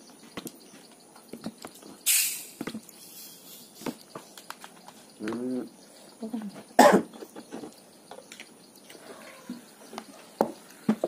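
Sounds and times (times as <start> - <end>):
fizz hissing from bottle: 2.0 - 3.6
people eating clicks and smacks: 2.6 - 5.8.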